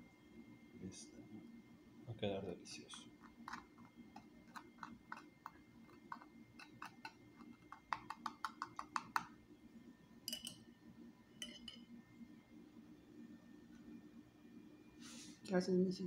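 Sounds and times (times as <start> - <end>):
metal spoon scraping toast: 3.2 - 7.8.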